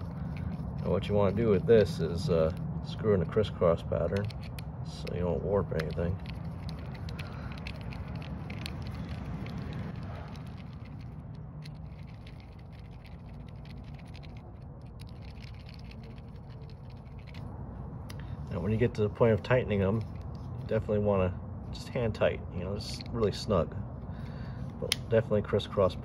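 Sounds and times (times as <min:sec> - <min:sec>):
low steady hum: 0:00.0 - 0:26.0
metal clicks and scrapes: 0:04.1 - 0:17.5.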